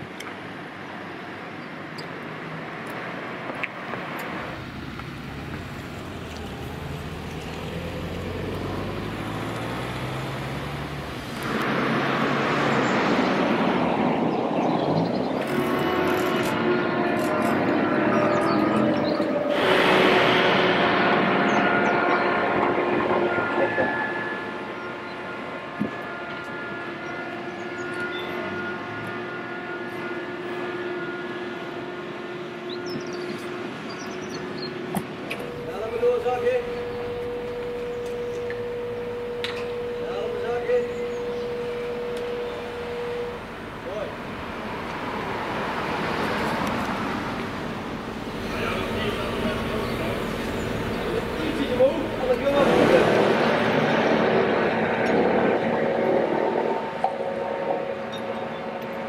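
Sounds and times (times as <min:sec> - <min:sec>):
loud rushing vehicle noise: 0:02.2 - 0:59.0
low engine hum: 0:03.8 - 0:24.9, 0:32.2 - 0:59.0
constant tones: 0:15.4 - 0:59.0.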